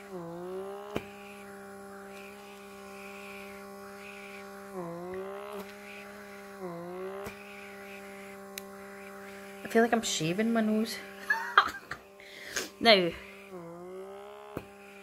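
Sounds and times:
pore vacuum motor whine: 0.0s - 15.0s
sharp clicks: 8.5s - 8.8s.

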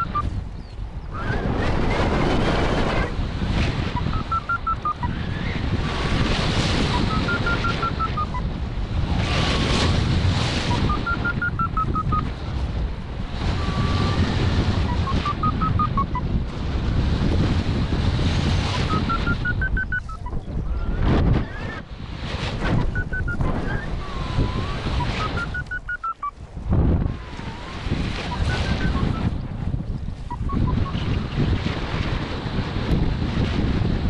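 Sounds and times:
variometer beeping: 0.0s - 0.2s, 3.9s - 5.2s, 6.9s - 8.5s, 10.7s - 12.3s, 14.9s - 16.2s, 18.8s - 20.4s, 22.8s - 23.8s, 24.9s - 26.3s
wind rushing over microphone: 0.0s - 34.0s.

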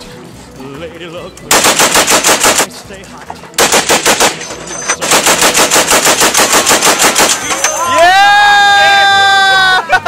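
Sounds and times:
machine gun automatic bursts: 1.5s - 2.7s, 3.6s - 7.5s.

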